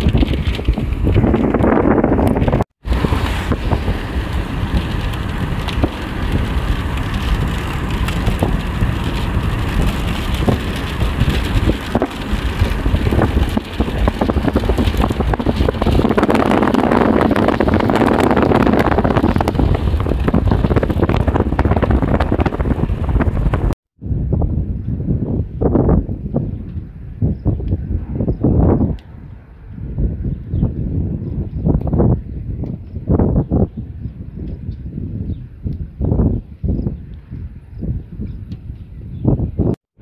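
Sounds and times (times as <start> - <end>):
raindrops pattering: 0.0 - 23.8
gusty wind on microphone: 0.0 - 40.0.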